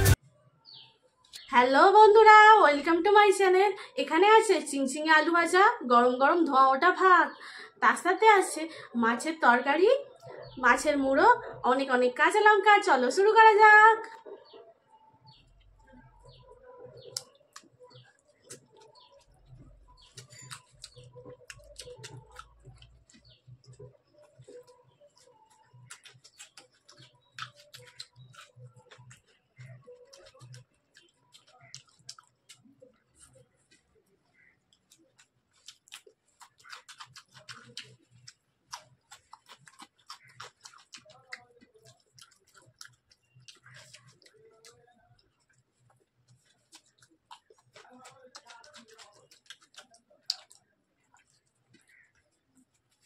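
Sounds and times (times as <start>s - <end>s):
small bird chirping: 0.0s - 1.5s, 14.2s - 33.5s, 41.8s - 45.4s
crunching cucumber bites: 17.0s - 53.0s
wet clicks of eating by hand: 17.0s - 53.0s.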